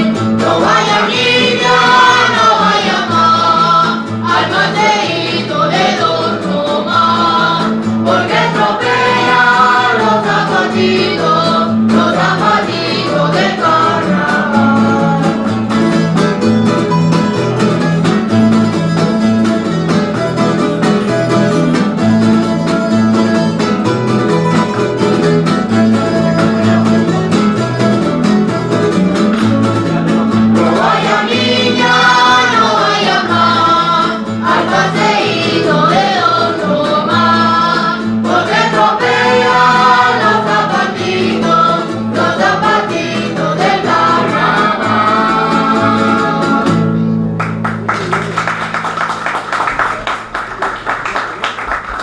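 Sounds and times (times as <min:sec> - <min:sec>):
voices singing together: 0:00.0 - 0:15.7, 0:29.9 - 0:47.0
guitars and plucked strings: 0:00.0 - 0:50.4.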